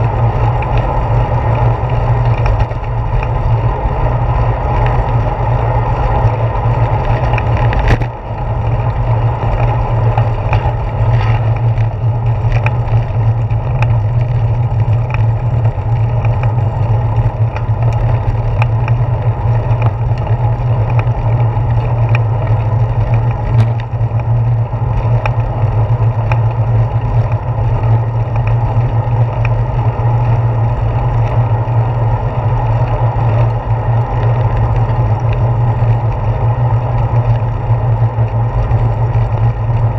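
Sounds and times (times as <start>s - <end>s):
bicycle rolling on pavement: 0.0s - 39.9s
small clicks and rattles: 0.0s - 39.9s
wind noise: 0.0s - 39.9s.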